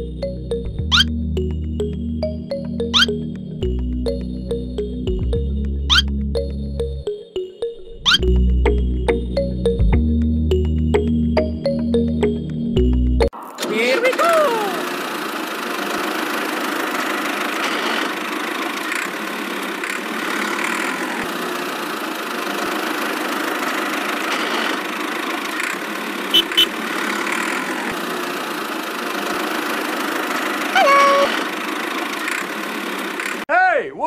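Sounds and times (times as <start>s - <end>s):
squeaky tone: 0.9s - 1.1s, 2.8s - 3.2s, 5.9s - 6.1s, 8.0s - 8.3s, 30.8s - 31.4s
toy tractor motor running: 13.6s - 33.5s.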